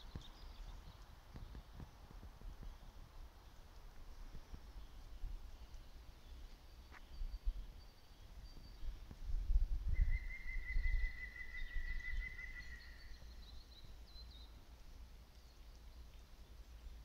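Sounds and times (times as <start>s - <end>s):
wind rumble on microphone: 7.1s - 14.0s
faint bird chirps: 9.9s - 16.8s.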